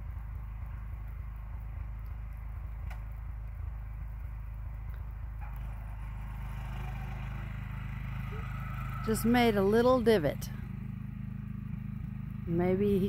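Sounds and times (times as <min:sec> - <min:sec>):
garden tractor engine running: 0:00.0 - 0:13.0
faint clicks: 0:01.0 - 0:03.3, 0:04.2 - 0:05.7.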